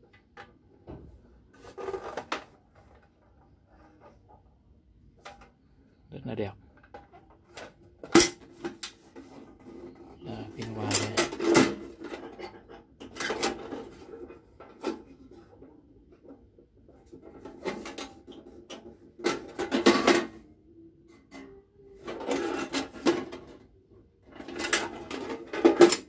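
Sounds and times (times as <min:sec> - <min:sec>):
metal tool box clanking: 0:10.5 - 0:14.0, 0:19.2 - 0:20.4.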